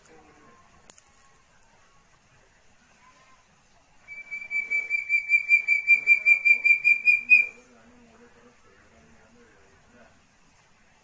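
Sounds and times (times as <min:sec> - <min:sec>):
partridge whistled calls: 0:04.1 - 0:07.6.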